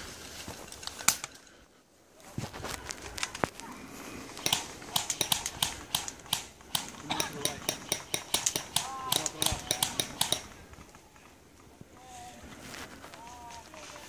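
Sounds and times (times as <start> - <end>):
airsoft guns firing: 4.3 - 11.4.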